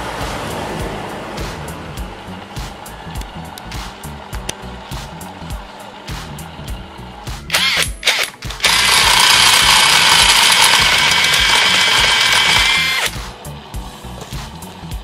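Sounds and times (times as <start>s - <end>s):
background music with a beat: 0.0s - 15.0s
cordless drill spinning: 7.5s - 13.2s.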